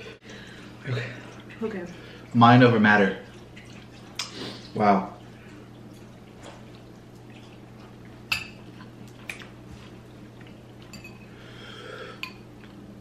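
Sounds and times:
forks clinking on ceramic bowls: 0:10.9 - 0:11.3.

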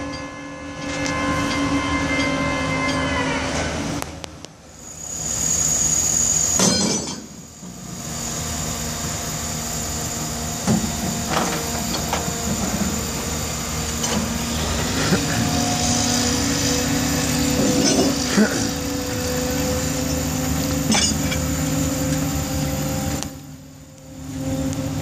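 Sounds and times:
crane engine droning: 0:00.0 - 0:25.0
sharp metal clanks and knocks: 0:06.5 - 0:07.8, 0:20.8 - 0:21.6.

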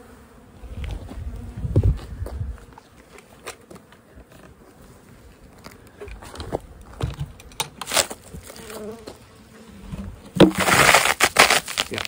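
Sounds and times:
bees buzzing: 0:00.0 - 0:11.8
knocks and scrapes of wood and plastic: 0:05.6 - 0:09.2, 0:09.8 - 0:11.9.

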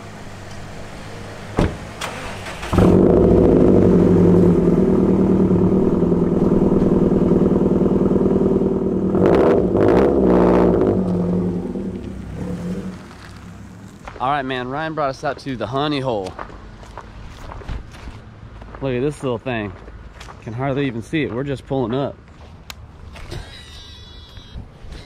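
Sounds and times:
car engine revving: 0:00.0 - 0:14.2
car engine starting and idling: 0:00.0 - 0:14.2.

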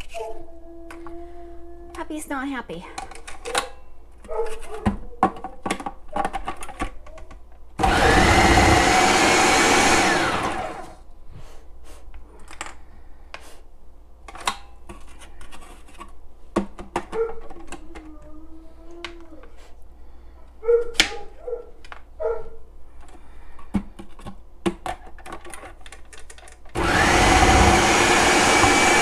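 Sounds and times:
food processor motor whine: 0:07.8 - 0:11.0, 0:26.8 - 0:29.0.

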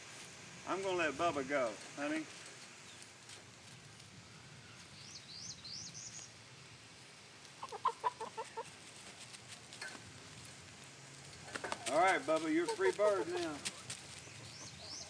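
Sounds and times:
chicken clucking: 0:07.6 - 0:08.8.

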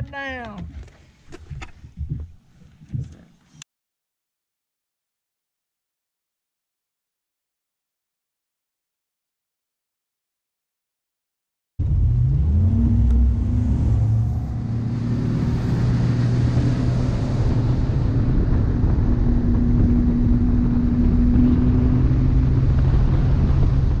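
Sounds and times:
outboard motor running at speed: 0:11.8 - 0:24.0
rush of wind and water: 0:11.8 - 0:24.0.

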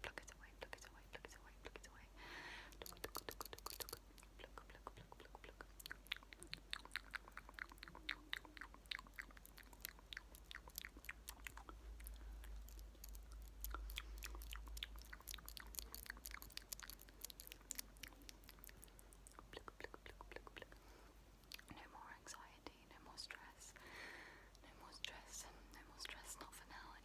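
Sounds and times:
wet mouth clicks and lip smacks: 0:02.7 - 0:20.8, 0:21.4 - 0:21.8.

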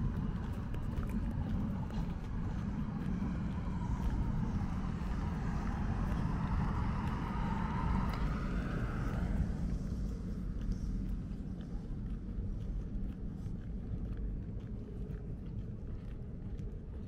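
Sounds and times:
car tyre noise passing: 0:00.0 - 0:11.5
low road traffic rumble: 0:00.0 - 0:17.0.

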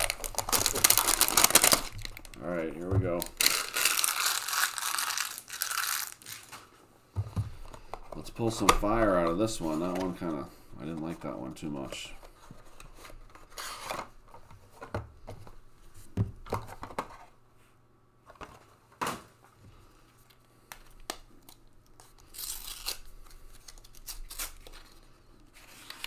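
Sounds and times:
foil wrapper tearing and crinkling: 0:00.0 - 0:02.5, 0:03.1 - 0:06.7, 0:22.0 - 0:25.0.

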